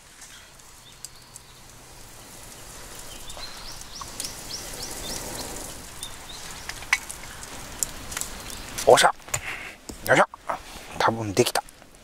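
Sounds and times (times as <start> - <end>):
pot of rice boiling: 0.0 - 9.4
campfire crackling and popping: 0.0 - 12.0
bird chirping: 0.2 - 7.6.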